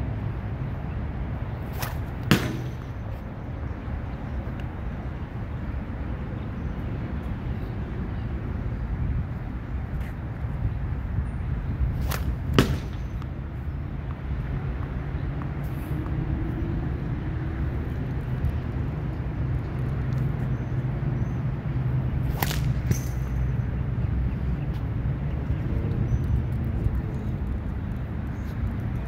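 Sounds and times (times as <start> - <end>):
ball hitting target: 1.6 - 3.2, 12.0 - 13.3, 22.3 - 23.4.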